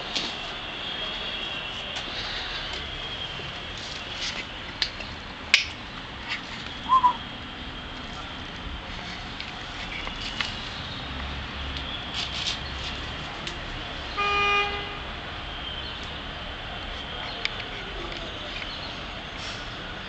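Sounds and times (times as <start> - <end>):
street traffic hum: 0.0 - 20.0
vehicle horn toot: 14.2 - 15.0.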